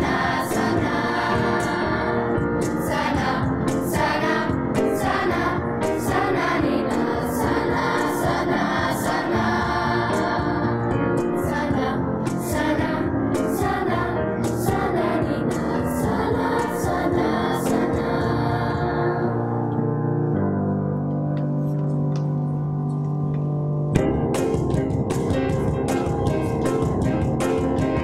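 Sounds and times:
children's choir singing: 0.0s - 19.9s.

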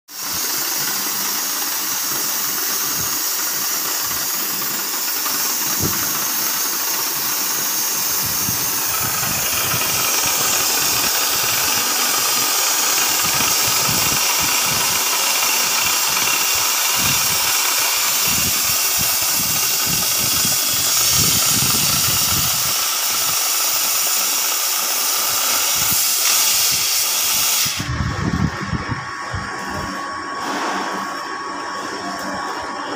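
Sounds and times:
cutting torch jet hiss: 0.1s - 32.6s
low fluttering: 7.9s - 17.6s.

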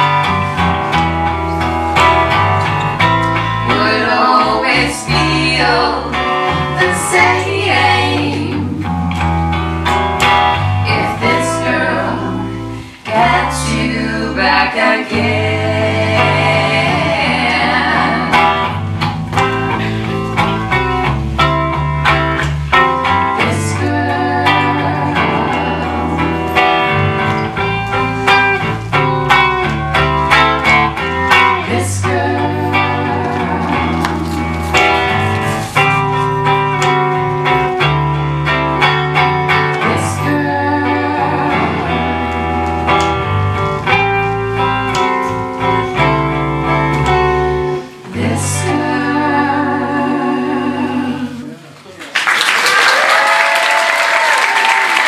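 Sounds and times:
bass guitar: 0.0s - 51.8s
electric guitar: 0.0s - 52.0s
women singing in harmony: 3.6s - 9.1s, 10.8s - 18.8s, 23.4s - 27.0s, 31.3s - 35.2s, 39.6s - 42.6s, 47.0s - 51.8s.

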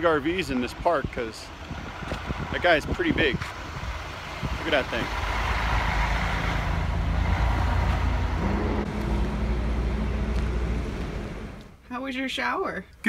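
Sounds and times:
deep engine rumble: 0.0s - 11.8s
tyre and road noise: 0.0s - 11.8s
engine tone: 5.2s - 11.8s.

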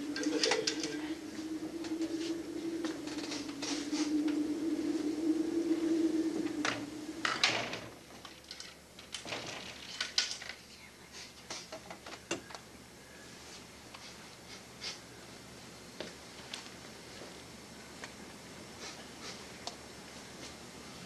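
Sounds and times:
steady low hum: 0.0s - 9.0s.

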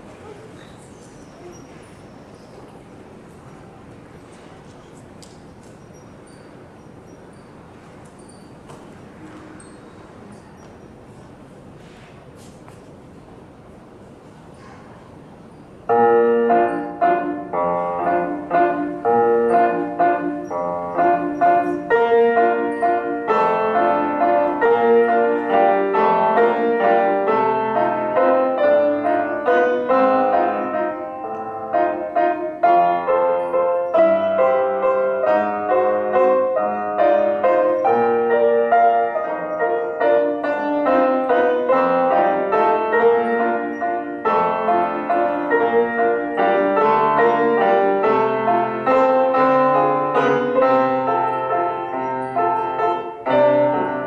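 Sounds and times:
upright piano playing: 15.8s - 54.0s.

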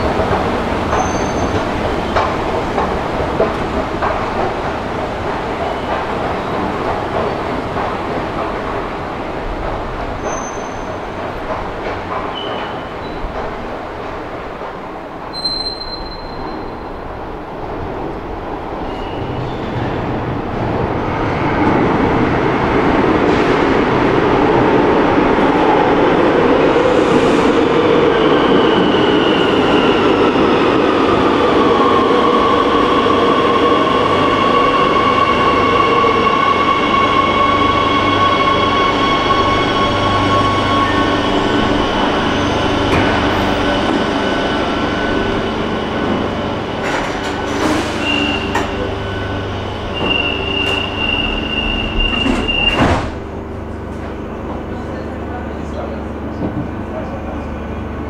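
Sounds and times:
train braking to a stop: 0.9s - 2.6s, 10.2s - 11.1s, 15.3s - 17.0s, 18.8s - 20.2s, 25.3s - 58.0s
train doors shutting thud: 50.0s - 53.4s.

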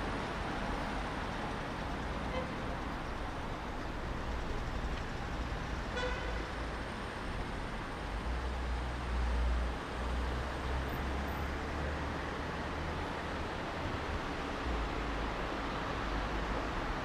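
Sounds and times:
street traffic: 0.0s - 17.0s
car horn toot: 6.0s - 6.4s.

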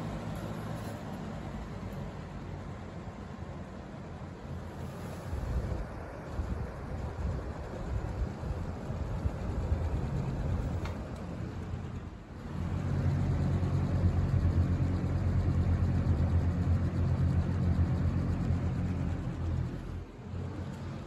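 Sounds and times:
air rushing from fan blade: 4.3s - 21.0s
box fan motor hum: 4.5s - 21.0s.

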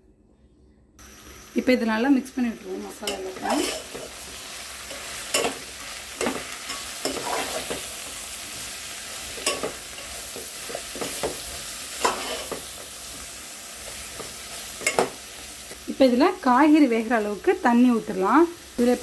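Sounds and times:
frying sizzle: 1.0s - 19.0s
spoon scraping and knocking pot: 3.0s - 4.2s.

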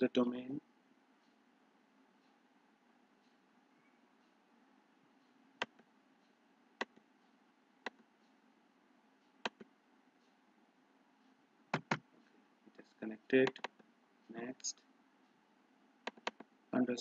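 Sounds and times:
faint steady hum: 0.0s - 17.0s
computer mouse clicking: 5.6s - 5.9s, 7.8s - 8.1s, 9.4s - 9.7s, 11.7s - 12.1s, 13.4s - 13.9s, 16.0s - 16.5s.

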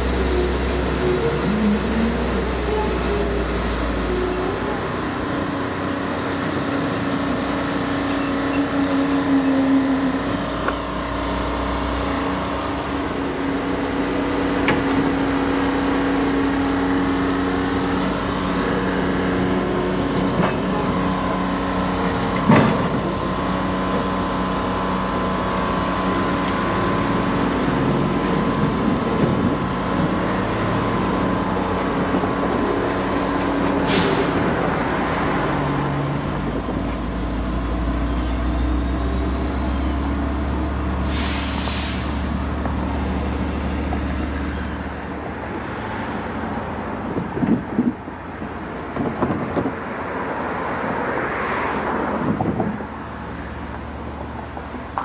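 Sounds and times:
diesel engines idling: 0.0s - 55.0s
air hissing: 41.0s - 42.3s.

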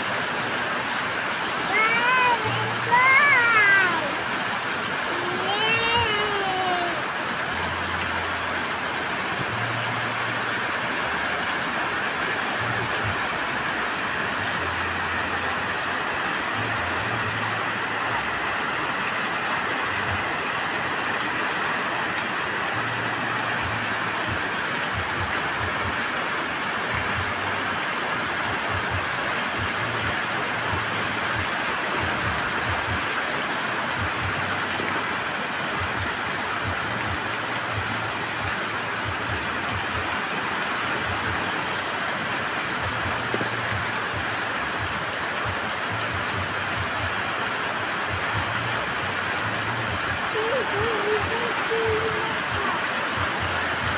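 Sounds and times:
heavy rain pouring: 0.0s - 53.9s.

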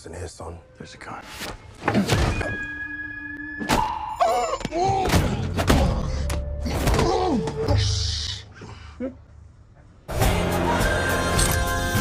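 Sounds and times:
film music: 10.1s - 12.0s.

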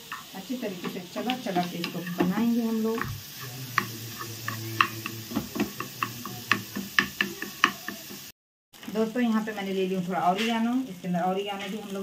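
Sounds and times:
spatula scraping frying pan: 0.0s - 8.3s
spatula tapping pan: 0.0s - 8.3s.

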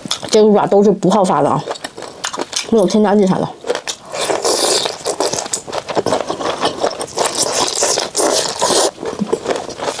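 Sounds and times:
wet chewing and smacking: 0.0s - 0.5s, 1.1s - 10.0s
crunching small bones: 1.6s - 3.0s, 3.6s - 10.0s.

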